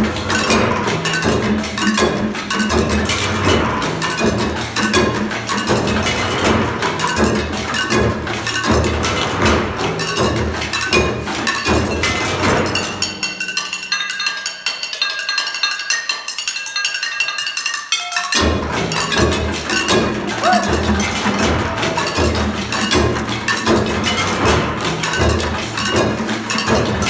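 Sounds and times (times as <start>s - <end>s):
low drum and bucket thumps: 0.0s - 13.4s, 18.4s - 27.0s
clinking taps with ringing notes: 0.0s - 27.0s.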